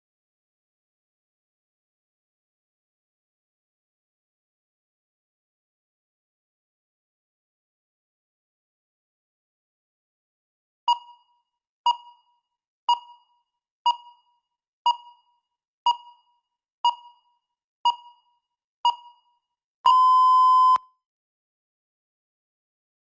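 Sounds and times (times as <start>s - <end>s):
short timer beeps: 10.9s - 11.3s, 15.9s - 17.3s, 17.9s - 19.3s, 19.9s - 20.9s
long timer beep: 19.9s - 20.9s.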